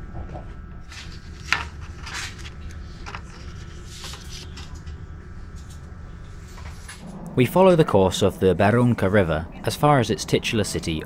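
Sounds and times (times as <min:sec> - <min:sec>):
paper rustling: 0:00.8 - 0:05.0
low rumble of moving train: 0:04.8 - 0:11.0.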